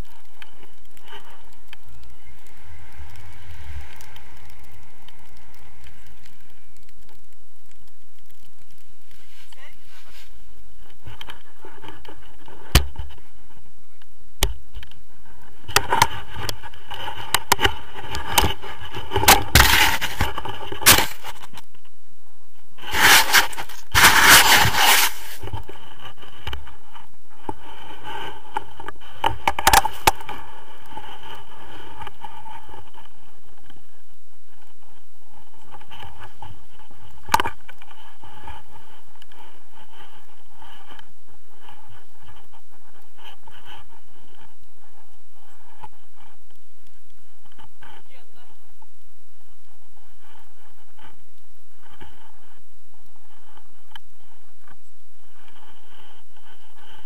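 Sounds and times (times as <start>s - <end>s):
snow crunching and scraping: 8.9s - 13.7s, 15.1s - 21.6s, 22.8s - 46.4s.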